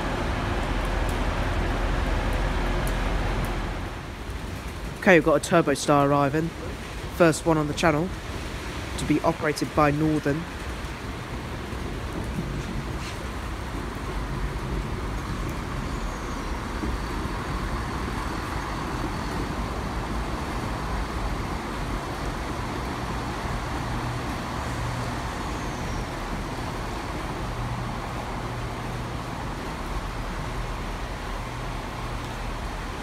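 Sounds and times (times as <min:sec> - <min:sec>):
train diesel engine drone: 0:00.0 - 0:04.3, 0:10.6 - 0:33.0.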